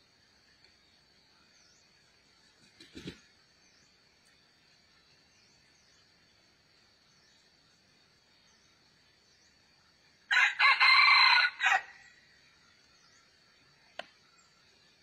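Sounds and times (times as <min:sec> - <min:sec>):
high insect drone: 0:00.0 - 0:15.0
rooster crowing: 0:10.3 - 0:12.2.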